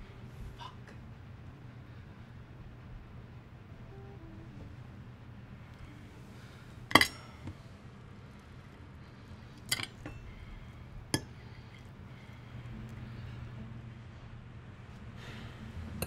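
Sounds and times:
low steady hum: 0.0s - 16.0s
tableware clinking: 6.9s - 7.4s, 9.7s - 10.5s.

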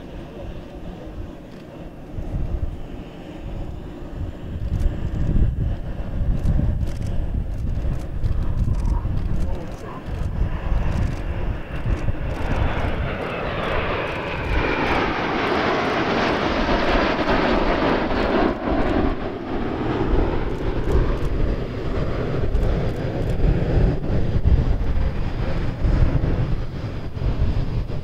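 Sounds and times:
jets flying past overhead: 0.0s - 28.0s.

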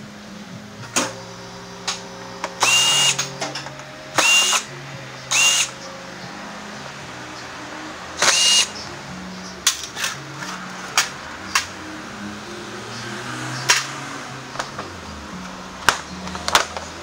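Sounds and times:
cordless drill whirring: 2.5s - 3.4s, 4.2s - 4.7s, 5.3s - 5.8s, 8.2s - 8.7s.

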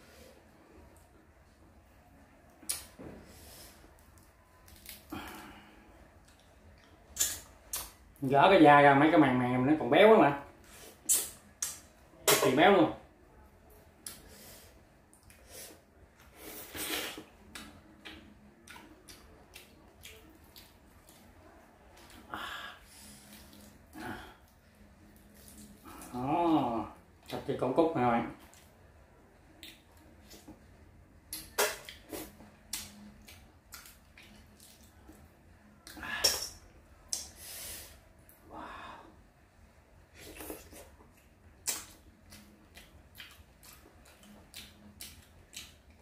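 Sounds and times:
breathy hiss: 37.4s - 39.2s
wet smacking and squelching: 40.3s - 45.9s.

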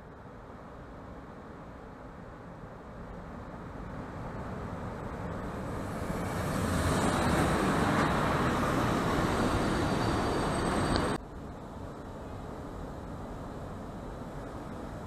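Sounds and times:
electric train passing: 3.9s - 11.2s
faint high whine: 8.2s - 12.9s.

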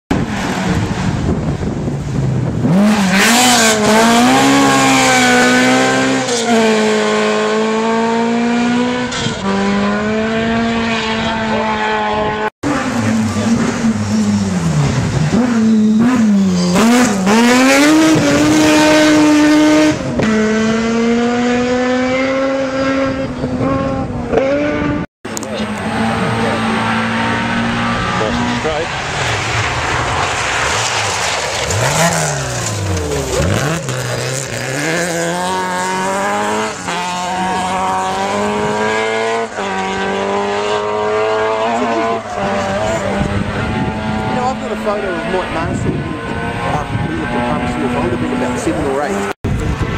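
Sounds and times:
rally car engines at full throttle: 0.1s - 49.9s.

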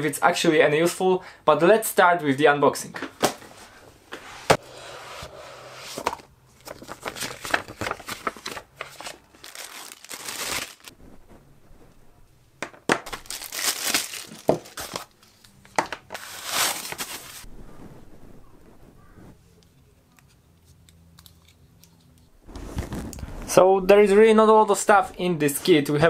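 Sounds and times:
packaging crinkling and rustling: 5.9s - 11.0s, 12.9s - 17.5s, 22.5s - 23.4s.

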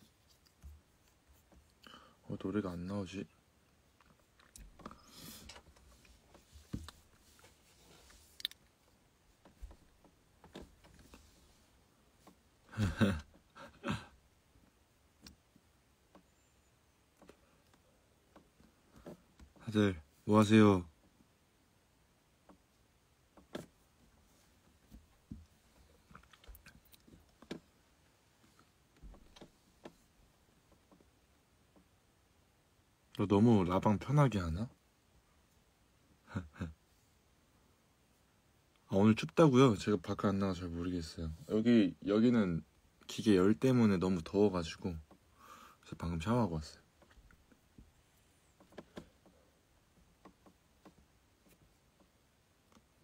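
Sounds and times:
faint clicks and taps: 24.6s - 27.7s, 47.0s - 53.0s
phone handling clicks and rustles: 48.5s - 49.4s.

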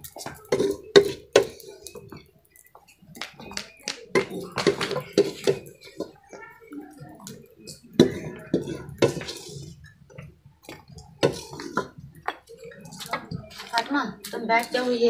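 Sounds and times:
metal ladle scraping a pot: 7.7s - 9.9s, 10.8s - 12.0s.

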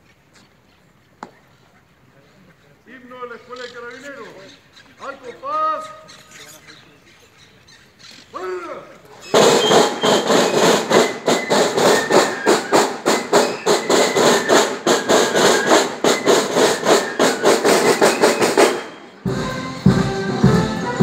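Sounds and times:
snare drums march cadence: 9.2s - 21.0s.

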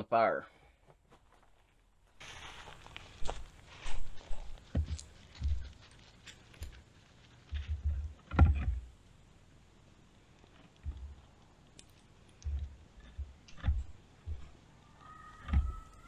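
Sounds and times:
wooden logs knocking together: 4.5s - 5.8s, 7.5s - 8.9s, 10.6s - 14.7s, 15.3s - 16.0s.

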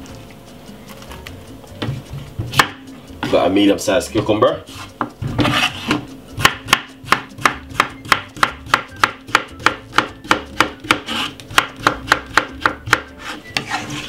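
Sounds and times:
knife chopping on wooden board: 1.8s - 3.4s, 4.2s - 13.8s.

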